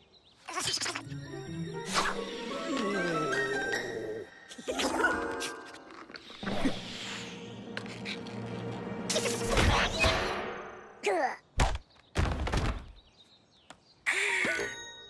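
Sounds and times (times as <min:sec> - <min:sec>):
background music: 0:00.7 - 0:11.0.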